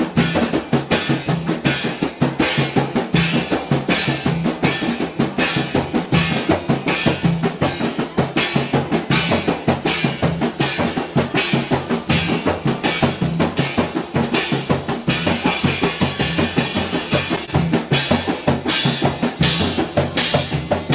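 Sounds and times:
cymbal crashes: 0.0 - 20.9
frame drums struck by hand: 0.0 - 20.9.

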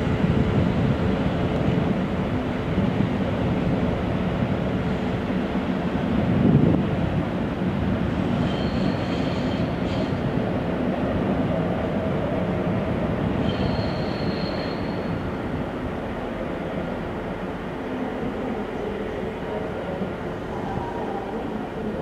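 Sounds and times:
train wheels rumbling on track: 0.0 - 22.0
high wheel squeal: 8.4 - 10.2, 13.4 - 15.2.

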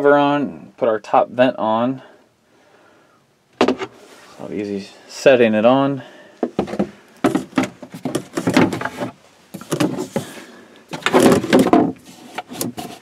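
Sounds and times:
plastic cover scraping and knocking: 6.4 - 13.0.

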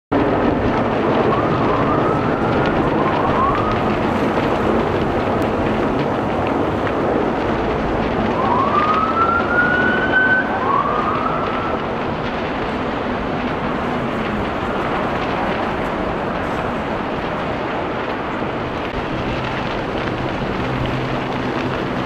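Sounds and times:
steady rushing background noise: 0.1 - 22.0
emergency siren rising sweeps: 0.8 - 5.8, 8.0 - 13.3.

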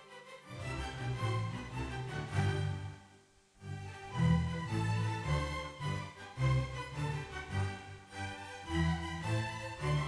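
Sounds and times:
bowed strings music: 0.0 - 10.0.

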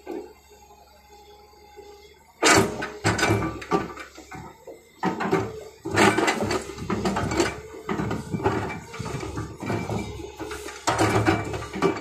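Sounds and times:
excavator bucket scraping: 2.4 - 12.0.

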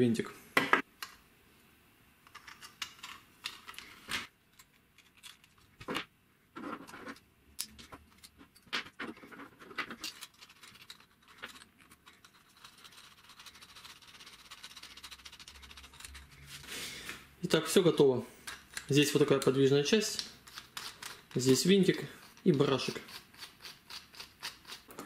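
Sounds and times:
plastic parts clicking together: 2.3 - 6.0
threaded rod scraping rattle: 7.8 - 16.4, 20.4 - 25.0.

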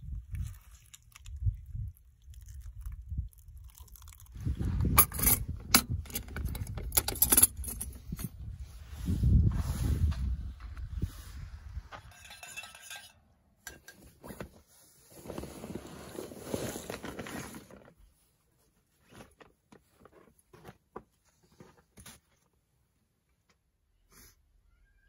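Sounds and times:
chair fabric rustling: 14.3 - 18.0.

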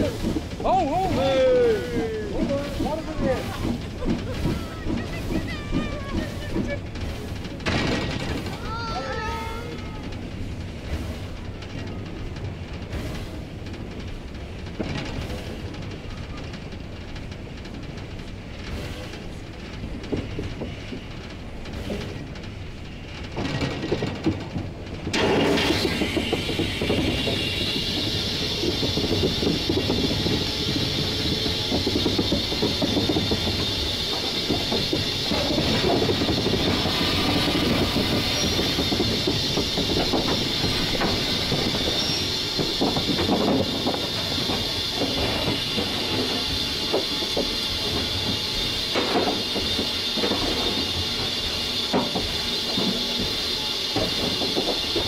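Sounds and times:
loud steam hiss: 0.0 - 11.5, 25.0 - 55.0
locomotive rumble and clatter: 0.0 - 55.0.

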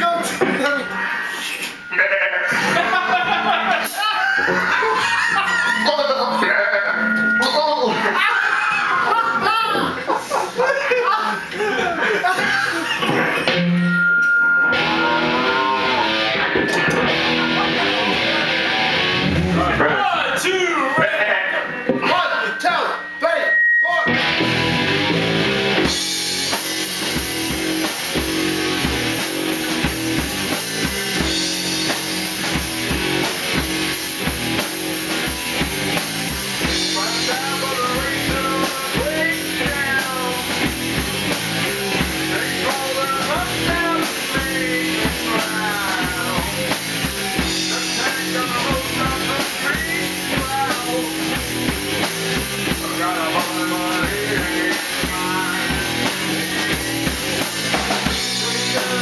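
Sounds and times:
rock band playing live: 0.0 - 59.0
man singing: 36.6 - 41.0, 41.8 - 51.6, 52.6 - 56.8, 58.0 - 59.0.

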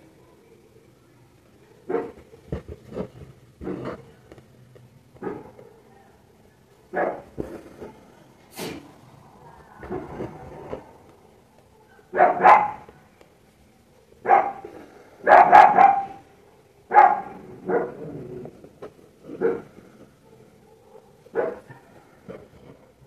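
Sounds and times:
dog barking: 1.7 - 2.2, 5.2 - 5.9, 6.9 - 7.9, 11.5 - 12.9, 14.2 - 18.2, 19.3 - 22.8.

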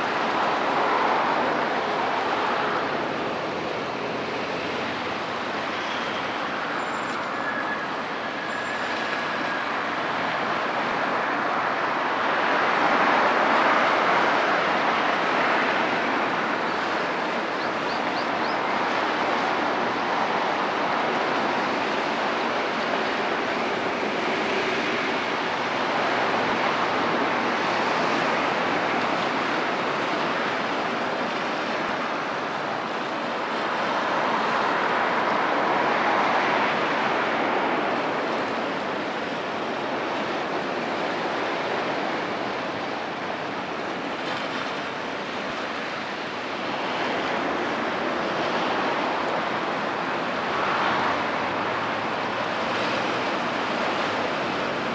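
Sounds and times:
sea water washing: 18.2 - 54.9.

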